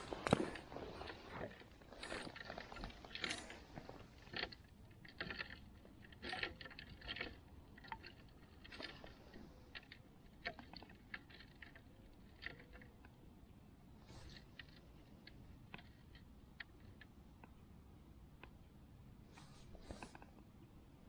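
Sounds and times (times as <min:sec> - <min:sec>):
clothing and gear handling noise: 0:00.0 - 0:05.4, 0:19.3 - 0:20.3.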